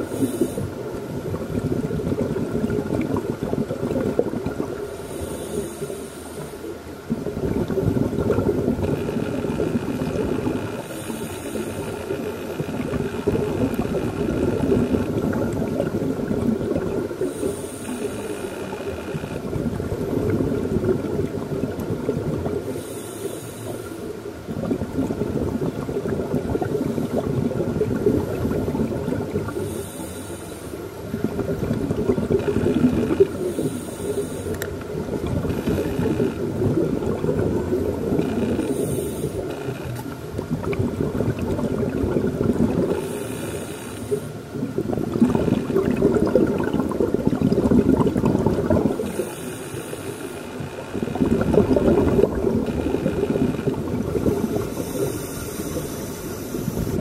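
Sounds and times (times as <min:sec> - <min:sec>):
regulator hissing breaths: 0:00.0 - 0:00.8, 0:04.9 - 0:06.8, 0:10.6 - 0:12.5, 0:17.2 - 0:19.2, 0:22.7 - 0:24.1, 0:29.5 - 0:31.0, 0:33.3 - 0:34.7, 0:38.3 - 0:39.8, 0:43.0 - 0:44.4, 0:49.0 - 0:51.0, 0:54.3 - 0:57.0
rumbling exhaust bubbles: 0:07.0 - 0:22.8, 0:24.3 - 0:30.3, 0:30.9 - 0:57.0.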